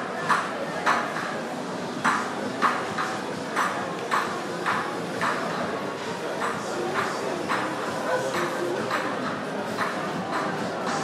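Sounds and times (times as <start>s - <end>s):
street noise murmur: 0.0s - 11.0s.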